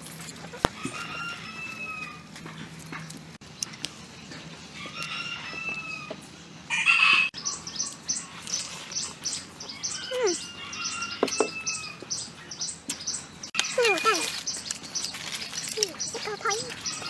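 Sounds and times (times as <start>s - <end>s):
rooster crowing: 0.7s - 2.3s, 4.8s - 7.4s, 9.7s - 12.0s
small bird chirping: 7.3s - 17.0s.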